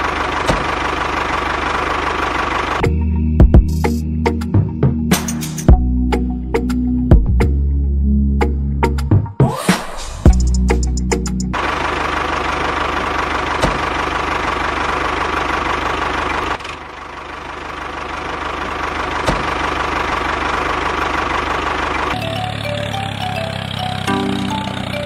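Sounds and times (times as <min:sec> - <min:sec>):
engine chugging with whine: 0:00.0 - 0:04.8, 0:10.3 - 0:25.0
simple melody music: 0:22.2 - 0:25.0.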